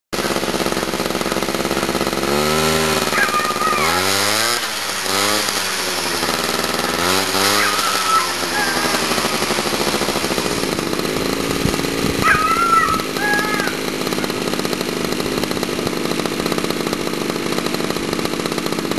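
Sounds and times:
small petrol engine revving: 0:00.2 - 0:18.9
short high squeals: 0:03.0 - 0:04.5, 0:06.1 - 0:10.4, 0:12.2 - 0:14.4.

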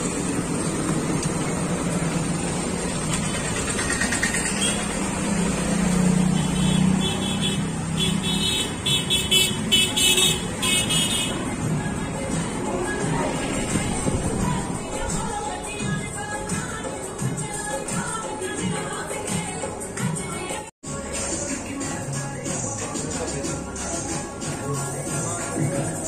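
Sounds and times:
vehicles passing: 0:00.0 - 0:20.0.

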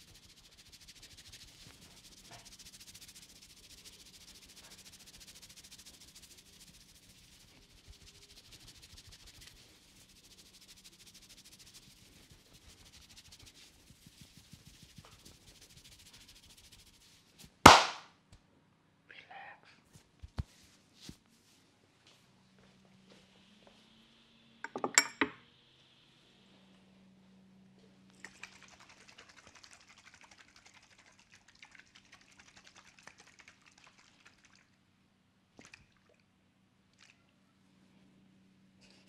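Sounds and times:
fingers rustling hair: 0:00.0 - 0:17.9
cupped hands popping on head: 0:17.7 - 0:18.0.

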